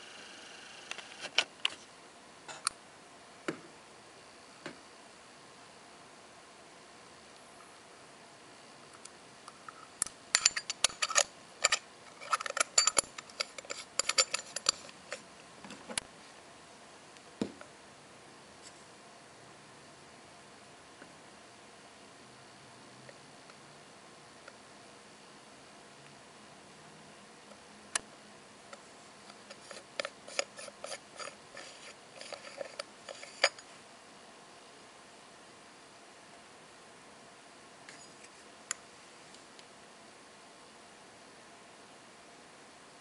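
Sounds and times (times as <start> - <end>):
metallic clicks and clinks: 10.3 - 15.2, 29.4 - 33.7
fingernails scraping watch cover: 29.5 - 33.6.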